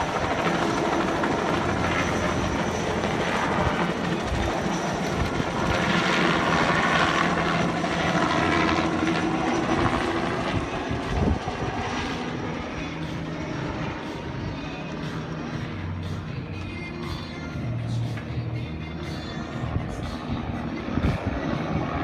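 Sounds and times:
helicopter passing over: 0.0 - 22.0.

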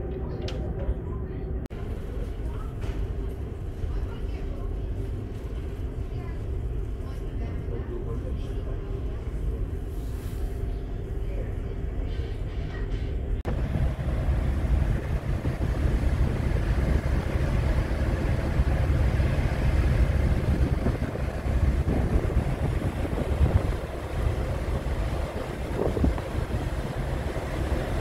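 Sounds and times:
strong wind buffeting microphone: 13.4 - 28.0.

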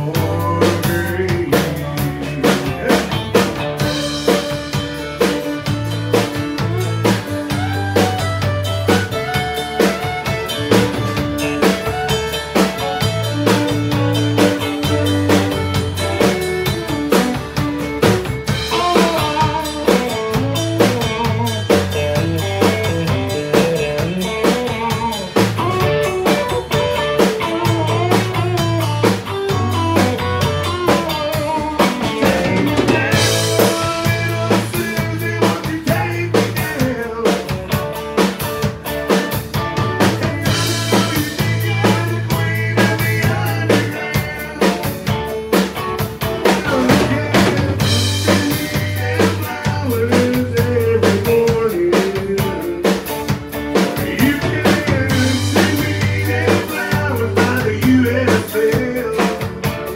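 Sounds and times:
bass: 0.0 - 59.9
drum kit rimshot beat: 0.0 - 59.9
electric guitar: 0.0 - 59.9
fiddle: 3.7 - 34.5.

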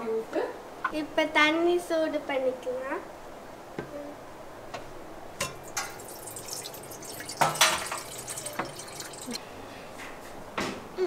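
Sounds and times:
water pouring into metal pot: 5.4 - 9.4.

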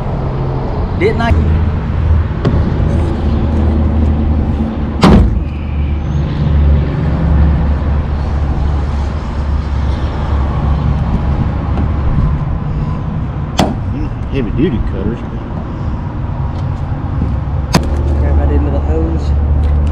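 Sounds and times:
low motor rumble: 0.0 - 19.9
sharp knock: 5.0 - 5.5, 13.6 - 13.8.

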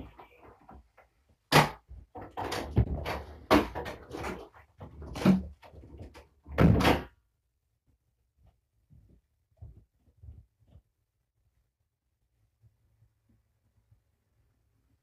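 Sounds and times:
pet carrier knocking and clattering: 1.5 - 5.8.

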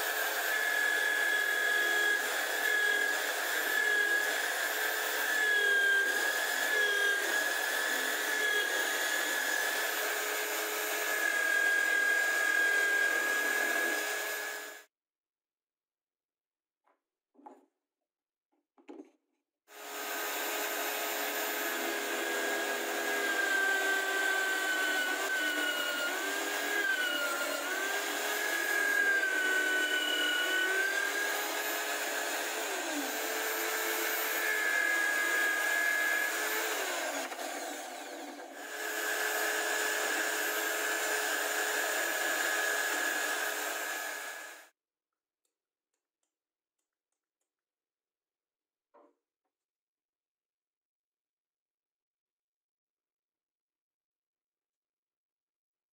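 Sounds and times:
drill press boring into wood: 0.0 - 14.9, 19.8 - 44.7.

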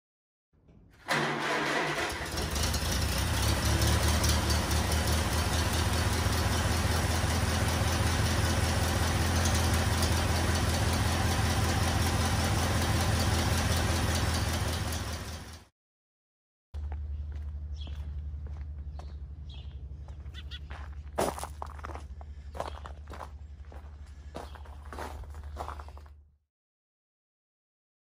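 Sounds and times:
engine starting and idling: 0.7 - 15.7.

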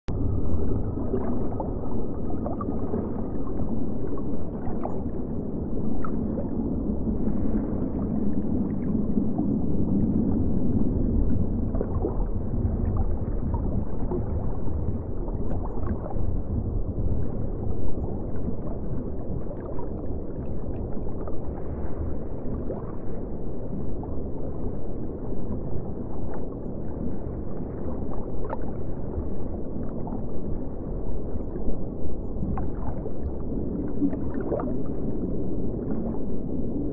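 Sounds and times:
low hum: 0.0 - 36.9
muffled underwater rumble: 0.0 - 36.9
water gurgling: 0.1 - 21.8, 25.4 - 36.9.

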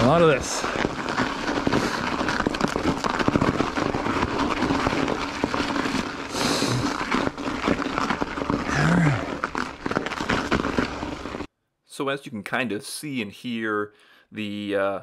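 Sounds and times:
bike tyres crunching through ice: 0.0 - 11.5
low grunt-like sound: 8.6 - 9.5.

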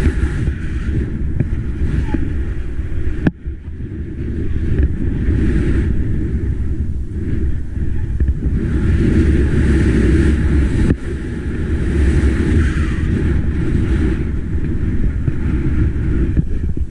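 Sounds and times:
skis hissing through snow: 0.0 - 3.2
wind buffeting microphone: 0.0 - 16.9.

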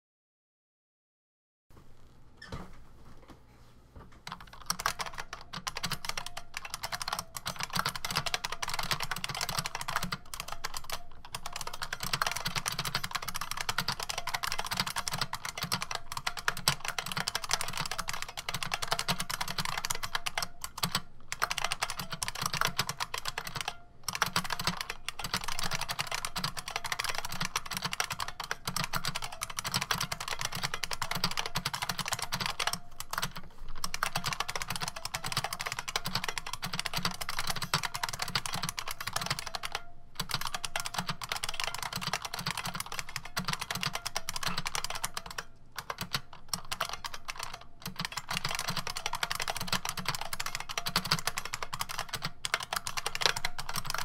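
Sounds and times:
fast clicky keyboard typing: 4.2 - 54.0.

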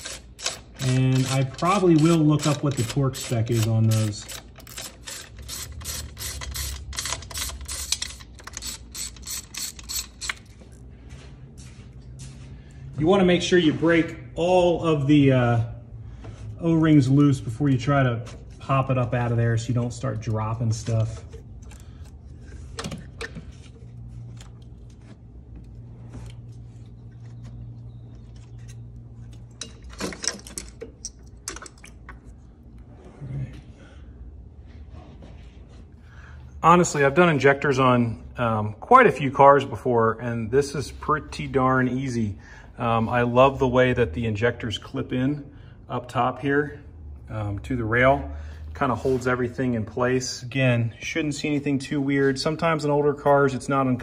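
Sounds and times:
ratchet wrench clicking: 0.0 - 10.5
parts clattering: 17.0 - 32.7.

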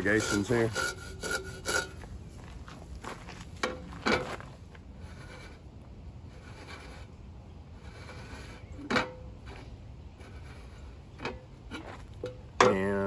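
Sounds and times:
marker scraping on metal can: 0.0 - 2.0.

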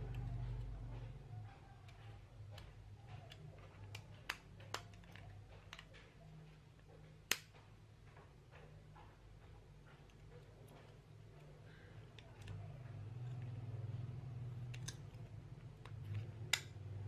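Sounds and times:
faint low hum: 0.0 - 17.0
screwdriver clicks and taps: 1.9 - 5.9, 6.8 - 7.6, 14.6 - 16.8.

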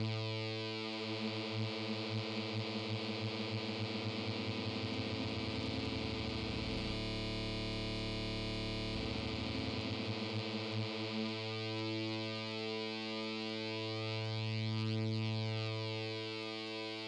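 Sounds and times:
low buzzy synthesizer note: 4.6 - 10.4.

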